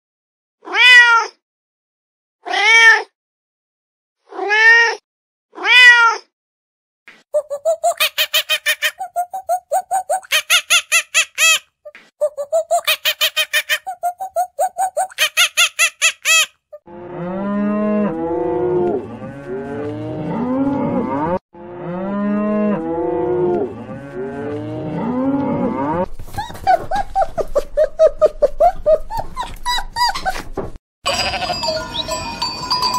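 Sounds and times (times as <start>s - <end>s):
monkey chattering: 7.4s - 16.5s
cattle mooing: 16.9s - 26.1s, 31.1s - 31.7s.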